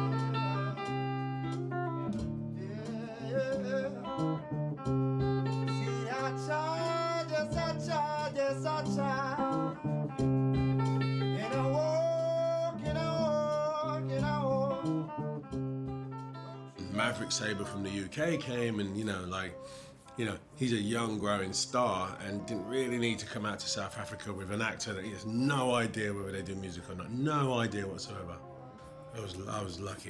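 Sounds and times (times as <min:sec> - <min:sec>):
guitar notes: 0:00.0 - 0:30.0
person singing: 0:02.6 - 0:04.6, 0:05.7 - 0:09.9, 0:11.2 - 0:15.2, 0:16.6 - 0:30.0.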